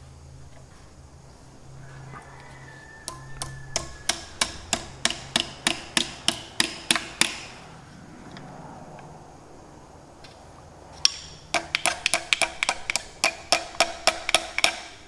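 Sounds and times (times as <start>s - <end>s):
steel tool tapping metal gear: 3.0s - 7.5s, 11.0s - 15.0s.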